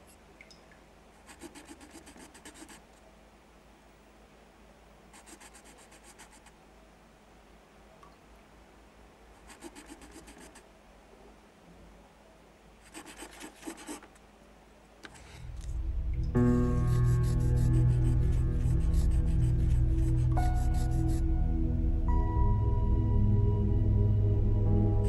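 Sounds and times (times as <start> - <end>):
crayon scribbling on paper: 1.3 - 2.8, 5.2 - 6.5, 9.4 - 10.6, 12.8 - 14.2, 16.8 - 21.2
music: 15.5 - 25.0.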